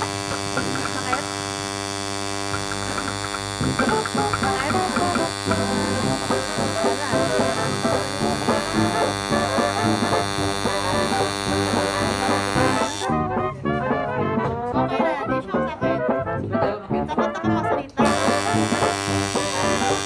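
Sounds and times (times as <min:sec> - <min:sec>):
tattoo machine buzzing: 0:00.0 - 0:13.3, 0:18.0 - 0:20.0.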